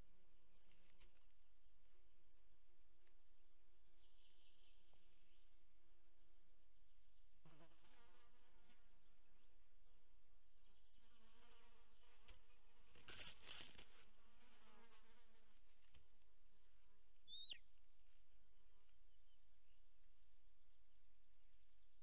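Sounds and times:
rustle: 0.0 - 2.1, 10.7 - 19.1.

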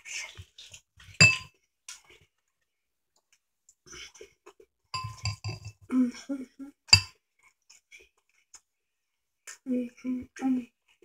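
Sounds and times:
fork clinking against bowl: 1.2 - 1.5, 5.0 - 5.7
fork scraping bowl: 5.0 - 5.7.

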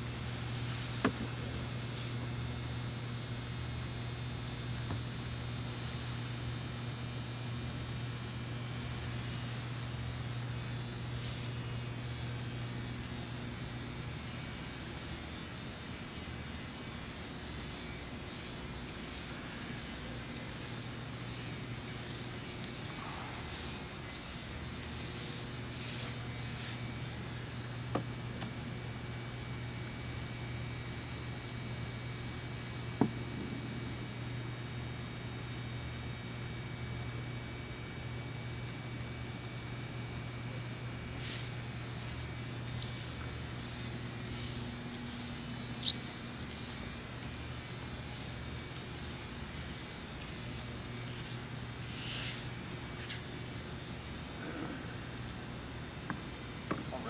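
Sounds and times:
low electrical hum: 0.0 - 57.0
paintbrush scratching on ice: 8.8 - 10.1, 10.9 - 27.1, 29.2 - 30.6, 40.9 - 53.4.

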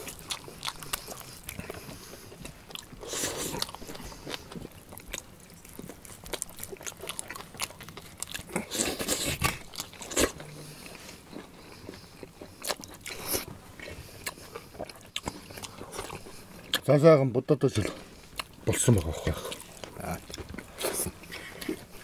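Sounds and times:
people chewing and biting: 0.0 - 17.1, 17.7 - 22.0.

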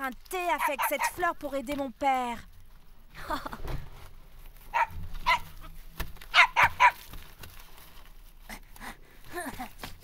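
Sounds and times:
cartoon dog barking: 0.5 - 1.2, 4.7 - 5.7, 6.3 - 7.0.

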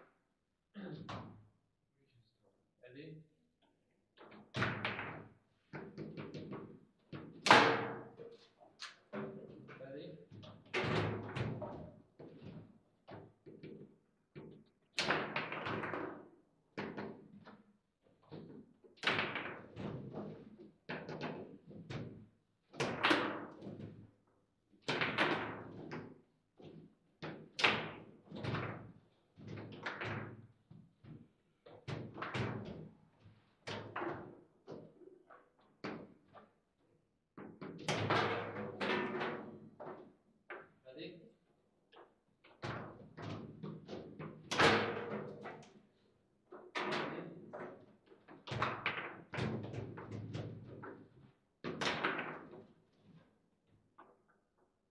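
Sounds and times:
foosball rods banging and clacking: 4.2 - 9.8, 24.8 - 30.5, 37.4 - 40.8, 41.9 - 45.8, 46.5 - 52.8.

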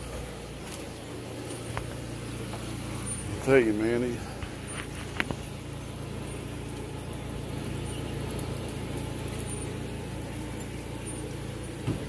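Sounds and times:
truck engine idling: 0.0 - 12.0.

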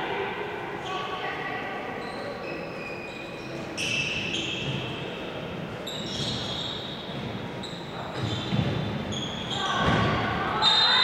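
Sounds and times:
shoes squeaking on court floor: 2.0 - 11.0.

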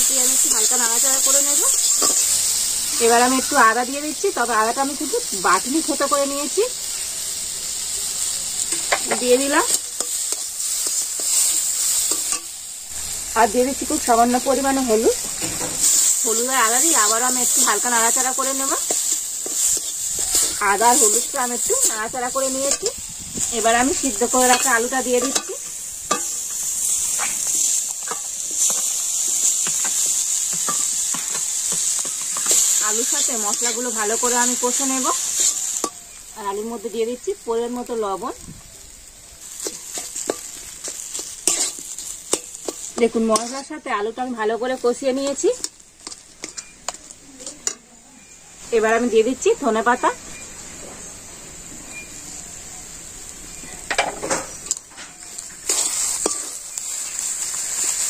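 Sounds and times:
high sizzle of frying: 0.0 - 58.0
metal spatula scraping a pan: 15.1 - 36.1, 39.6 - 43.8, 45.2 - 47.8, 53.6 - 58.0.

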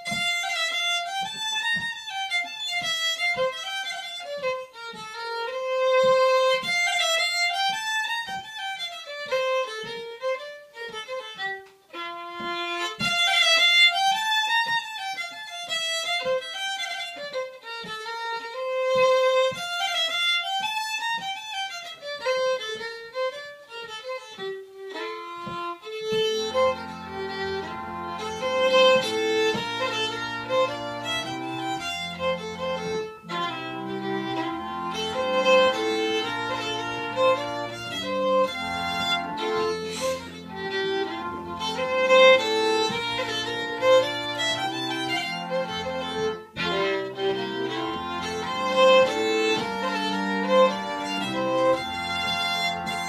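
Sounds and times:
fiddle melody: 0.0 - 53.0
reed organ chords: 26.1 - 53.0.

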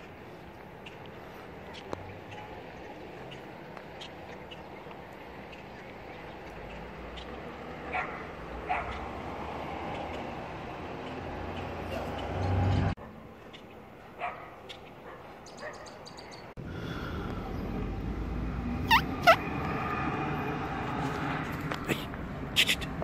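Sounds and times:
dog barking: 7.8 - 9.1, 14.2 - 16.0.

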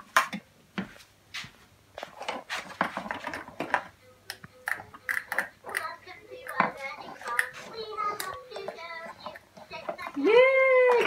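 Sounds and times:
toy cookware clicks and knocks: 2.8 - 10.2.

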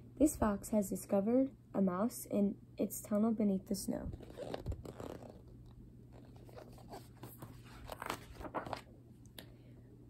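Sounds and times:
faint low hum: 0.0 - 10.0
book pages rustling: 4.1 - 8.9.

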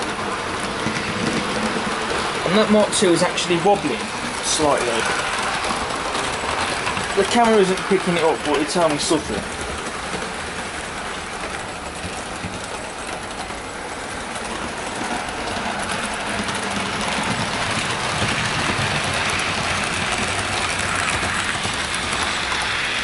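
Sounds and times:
model train motor whirring: 16.0 - 23.0.

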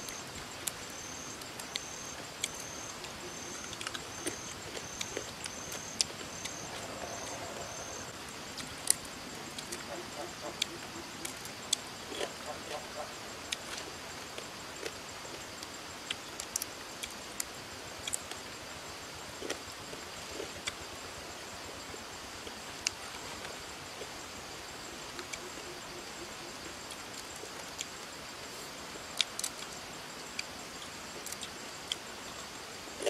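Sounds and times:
faint high steady tones: 0.0 - 16.0
crunchy chewing: 0.0 - 18.4, 19.3 - 20.9, 29.1 - 29.8, 30.4 - 33.0
background hiss: 0.0 - 33.0.

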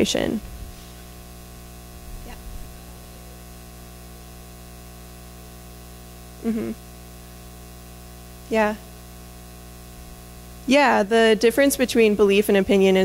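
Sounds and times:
steady hiss: 0.0 - 5.1
faint electrical hum: 0.0 - 13.0
person speaking: 6.4 - 6.8.

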